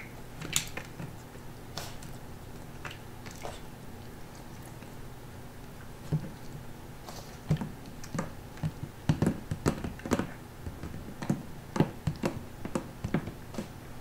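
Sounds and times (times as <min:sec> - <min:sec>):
puppy lapping water: 0:01.8 - 0:05.0.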